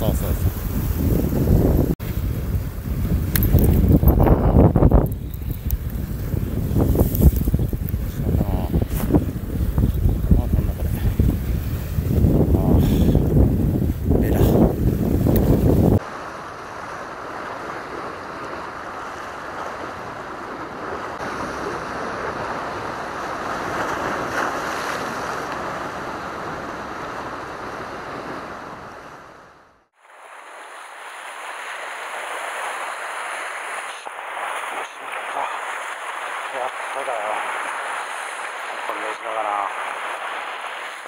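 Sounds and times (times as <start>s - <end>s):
wind buffeting microphone: 0.0s - 16.0s
surf washing against rocks: 0.0s - 29.3s, 29.9s - 41.0s.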